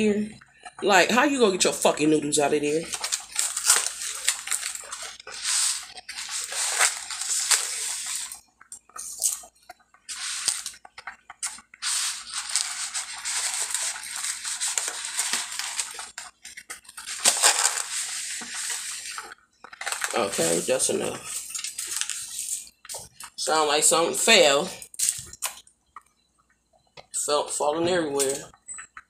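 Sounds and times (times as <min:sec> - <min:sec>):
dry spaghetti rattling in box: 0:02.8 - 0:08.4, 0:10.1 - 0:22.5.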